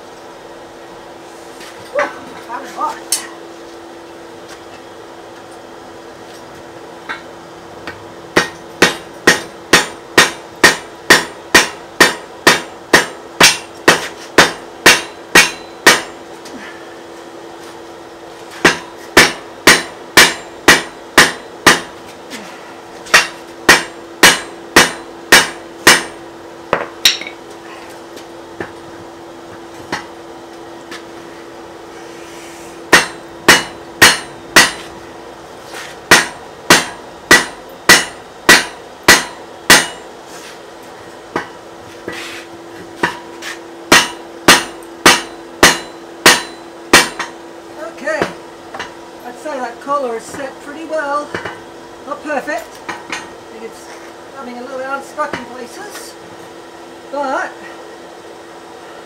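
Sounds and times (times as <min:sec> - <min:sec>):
steady hum: 0:00.0 - 0:59.0
hammer striking hot iron: 0:07.0 - 0:16.2, 0:18.6 - 0:22.0, 0:23.1 - 0:27.4, 0:29.5 - 0:30.1, 0:32.9 - 0:35.0, 0:36.1 - 0:40.1, 0:41.3 - 0:42.2, 0:43.0 - 0:47.4, 0:48.2 - 0:49.0, 0:51.2 - 0:51.7, 0:52.8 - 0:53.4.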